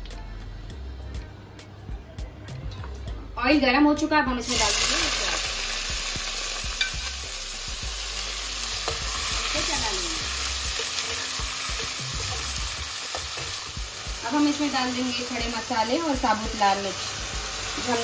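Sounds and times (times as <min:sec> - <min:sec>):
onions sizzling in hot oil: 0:04.4 - 0:18.0.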